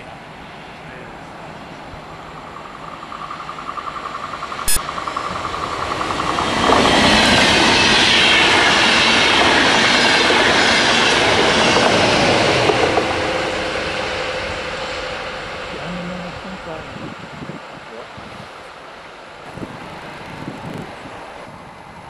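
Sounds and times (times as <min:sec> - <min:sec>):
train wheels rushing: 0:00.0 - 0:16.6
locomotive steady tone: 0:00.0 - 0:22.0
pulsing ringing tone: 0:01.7 - 0:08.0.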